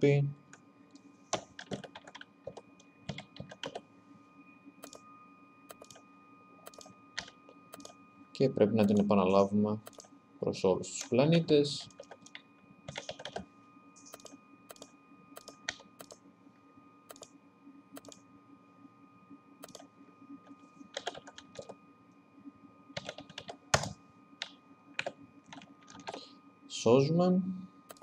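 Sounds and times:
faint steady hum: 0.0s - 28.0s
keyboard typing: 0.9s - 3.8s, 4.8s - 5.0s, 5.7s - 6.0s, 6.6s - 8.0s, 8.7s - 9.2s, 9.8s - 10.2s, 11.8s - 16.2s, 17.1s - 17.4s, 18.0s - 18.2s, 19.6s - 21.8s, 23.0s - 26.2s.

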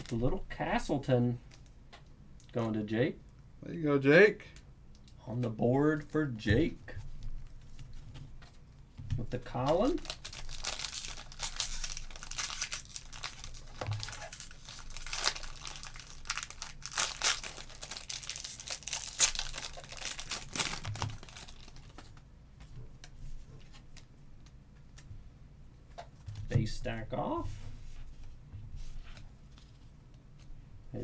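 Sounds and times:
handling cards: 9.3s - 25.1s
foil wrapper tearing and crinkling: 9.6s - 22.1s.

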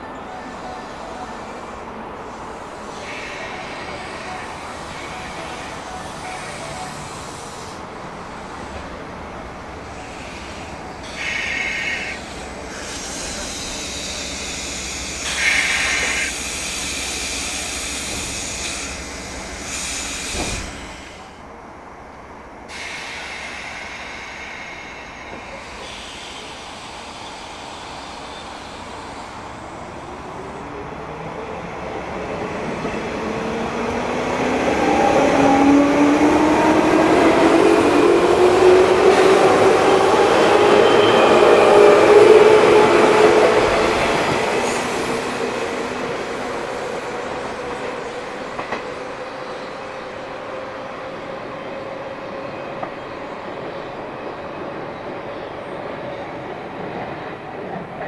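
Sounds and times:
brief air hisses: 10.0s - 21.2s, 22.7s - 29.2s.

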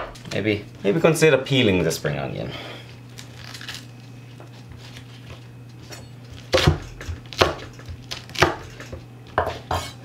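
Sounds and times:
knife chopping on cutting board: 6.5s - 10.0s.

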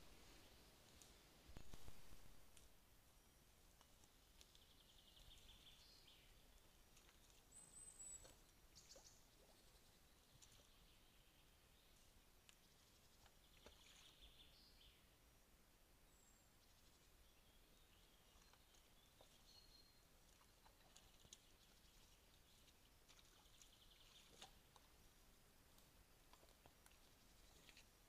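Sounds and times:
faint forest ambience: 0.0s - 28.0s.

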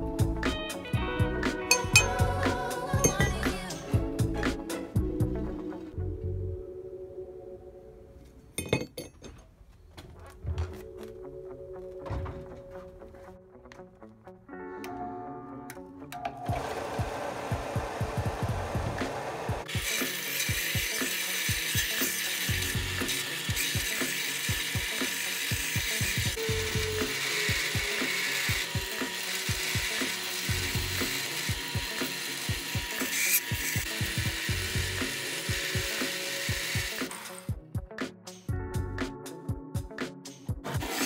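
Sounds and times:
background music beat: 0.0s - 7.2s, 10.0s - 41.0s
belt grinder grinding steel: 1.7s - 3.9s, 19.6s - 37.6s, 40.6s - 41.0s.

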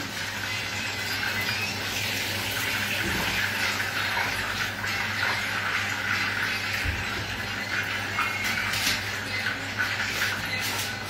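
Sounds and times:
chicken sizzling in hot oil: 0.0s - 11.0s.

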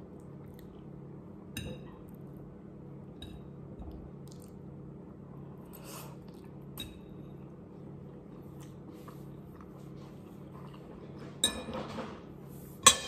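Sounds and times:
steady low hum: 0.0s - 13.0s
quiet chewing: 5.7s - 6.7s, 7.8s - 11.2s.

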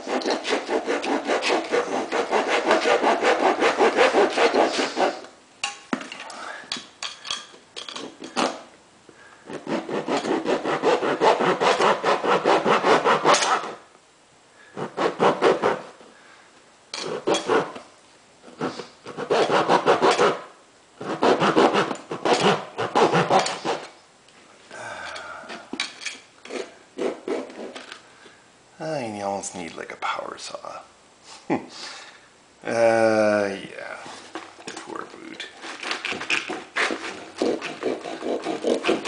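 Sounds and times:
saw rasping through leather boot: 0.0s - 5.3s, 9.5s - 13.8s, 14.8s - 15.9s, 17.0s - 17.8s, 18.5s - 23.9s, 26.5s - 27.8s, 35.6s - 39.0s.

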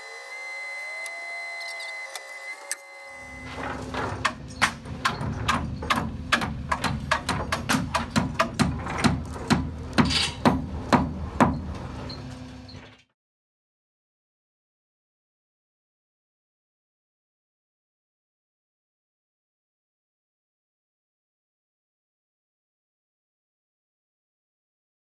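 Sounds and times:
mechanical whine rising in pitch: 0.0s - 4.6s
hammer driving nails into wood: 3.8s - 11.8s.

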